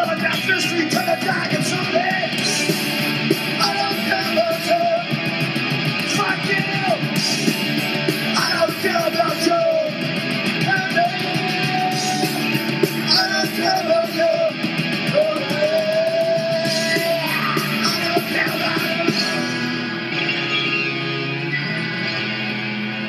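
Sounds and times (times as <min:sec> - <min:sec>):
fast drums: 0:00.0 - 0:20.0
guitars: 0:00.0 - 0:23.0
punk rock song: 0:00.0 - 0:23.0
shouted vocals: 0:06.0 - 0:07.2, 0:08.3 - 0:10.0, 0:10.6 - 0:19.9.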